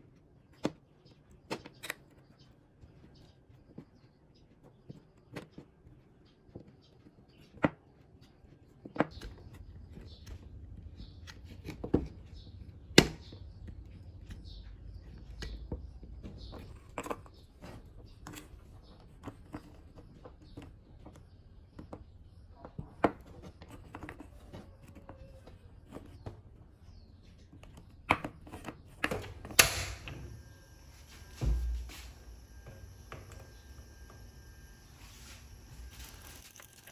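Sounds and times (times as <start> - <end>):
gas stove burner lighting: 29.2 - 35.8.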